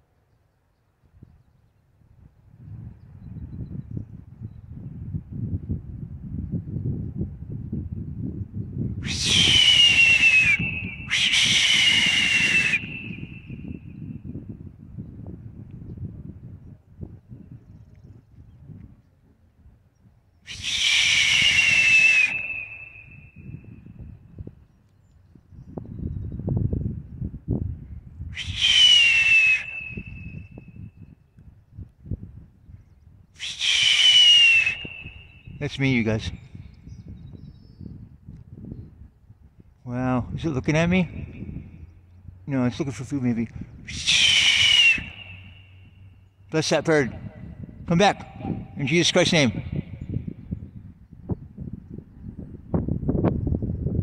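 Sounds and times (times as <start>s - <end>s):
hoarse whistles: 9.0s - 14.2s, 20.4s - 24.0s, 28.3s - 31.1s, 33.4s - 35.8s, 43.7s - 46.3s.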